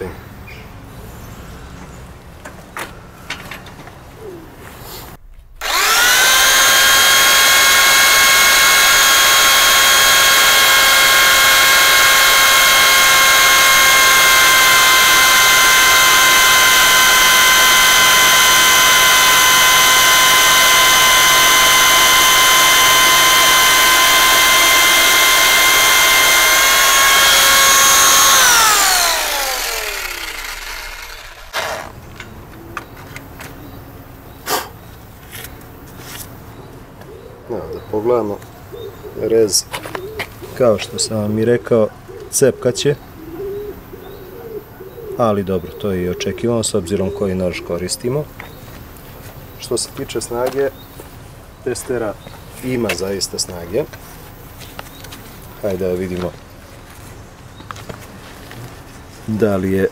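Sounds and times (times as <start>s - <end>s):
jigsaw cutting wood: 5.6s - 32.0s.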